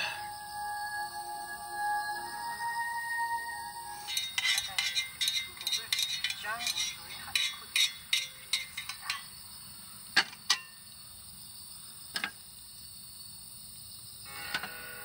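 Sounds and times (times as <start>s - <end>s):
music: 0.0s - 5.0s
tableware clinking: 4.0s - 9.3s.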